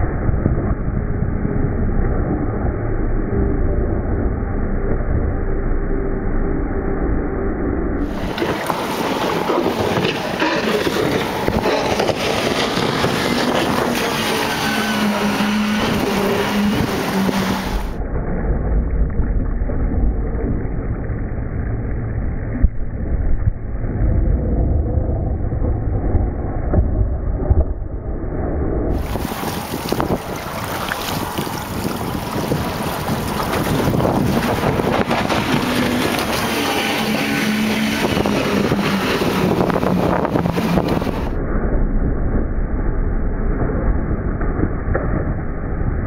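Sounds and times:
motorboat engine drone: 0:00.0 - 0:46.0
wind buffeting microphone: 0:08.0 - 0:18.0, 0:28.9 - 0:42.4.

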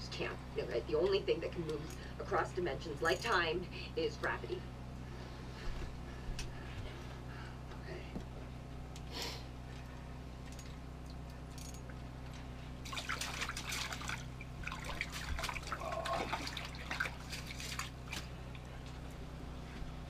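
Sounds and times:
low hum: 0:00.0 - 0:20.0
water splashing and dripping: 0:12.8 - 0:18.7.

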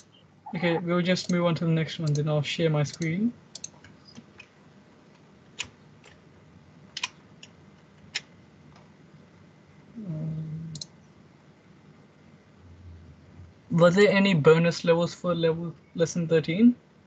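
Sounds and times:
faint computer clicks: 0:01.2 - 0:02.3, 0:02.9 - 0:04.6, 0:10.7 - 0:11.0
brief low hum: 0:12.6 - 0:13.8.

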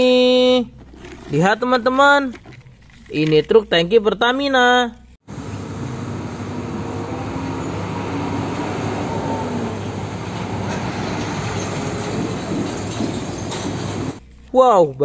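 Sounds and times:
truck engine passing: 0:05.3 - 0:14.2.

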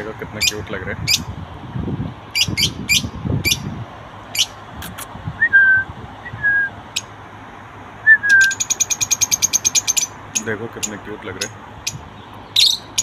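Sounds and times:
birds chirping: 0:00.0 - 0:01.4, 0:02.3 - 0:13.0
short whistled notes: 0:08.1 - 0:08.6.

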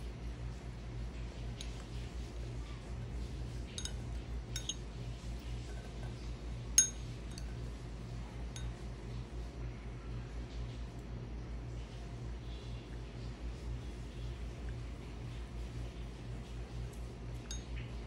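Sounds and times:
steady low hum: 0:00.0 - 0:18.0
spoon clinking against ceramic bowl: 0:03.7 - 0:04.9, 0:06.8 - 0:07.6, 0:17.5 - 0:17.8.

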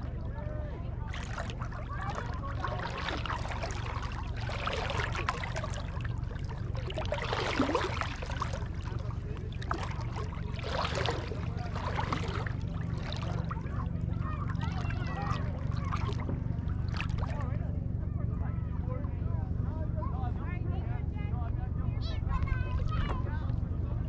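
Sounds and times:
seawater sloshing and splashing: 0:00.0 - 0:17.7
low hum: 0:00.0 - 0:24.0.

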